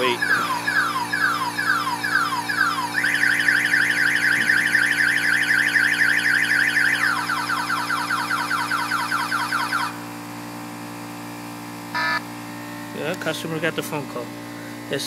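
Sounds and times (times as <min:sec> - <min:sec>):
electronic alarm siren warbling: 0:00.0 - 0:10.0, 0:11.9 - 0:12.2
air compressor humming: 0:00.0 - 0:15.0.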